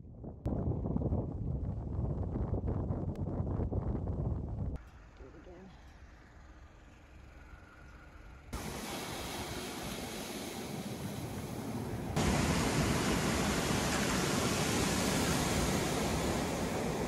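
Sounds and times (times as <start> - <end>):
steady rushing hiss: 8.6 - 17.0
surf breaking on cobblestones: 8.6 - 17.0.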